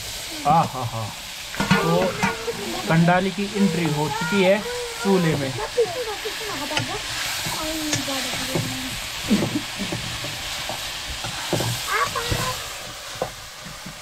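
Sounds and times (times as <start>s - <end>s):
greens sizzling in oil: 0.0s - 14.0s
ladle clinking on pan: 1.6s - 2.5s
metal ladle stirring and scraping: 1.6s - 3.1s.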